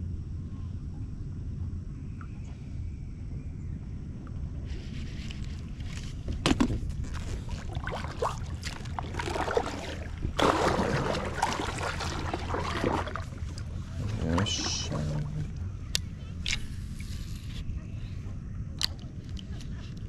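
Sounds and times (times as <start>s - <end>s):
steady low rumble: 0.0s - 20.0s
water splashing against kayak: 5.0s - 15.6s.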